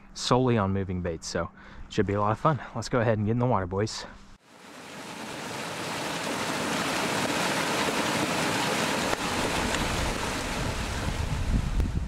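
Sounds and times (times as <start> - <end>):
water gushing from metal pipe: 4.6 - 11.4.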